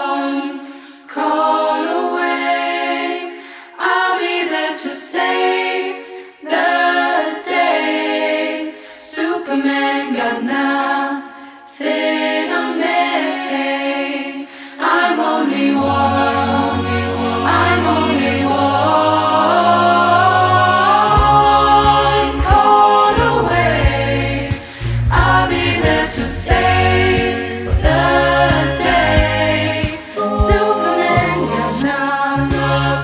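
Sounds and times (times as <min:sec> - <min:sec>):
choir singing a cappella: 0:00.0 - 0:33.0.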